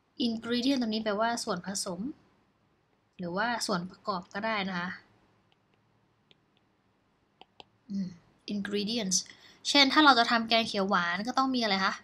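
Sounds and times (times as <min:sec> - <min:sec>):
stylus tapping tablet screen: 0:05.4 - 0:07.8.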